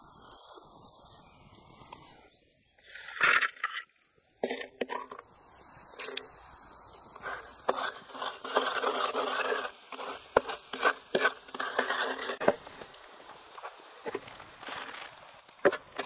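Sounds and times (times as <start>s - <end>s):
rubbing and scraping food: 5.9s - 16.0s.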